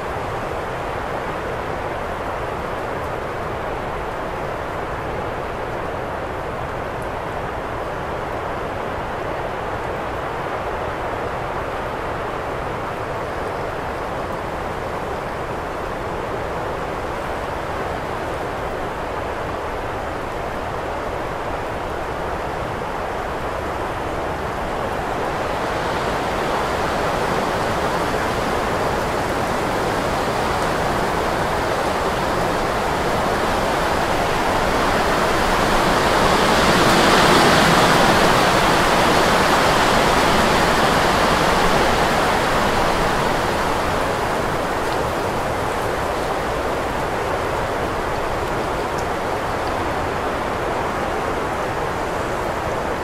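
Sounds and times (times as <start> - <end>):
wind blowing: 21.6 - 53.0.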